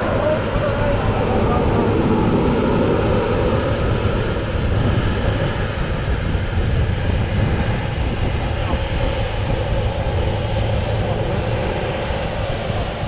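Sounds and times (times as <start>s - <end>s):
tractor engines droning: 0.0s - 13.0s.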